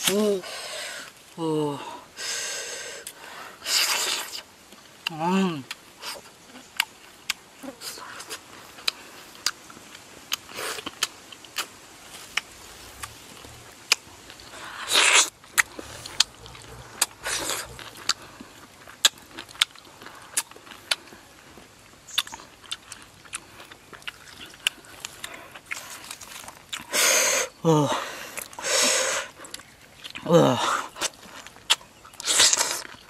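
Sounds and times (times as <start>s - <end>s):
lip smacks and wet clicks: 3.8s - 7.4s, 22.1s - 26.9s, 30.9s - 33.0s
slurps: 10.4s - 19.3s, 28.4s - 33.0s.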